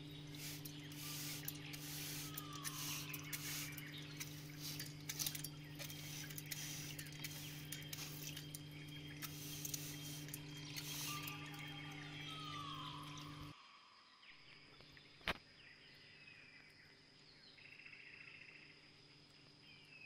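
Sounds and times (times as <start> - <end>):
small motor humming: 0.0 - 13.5.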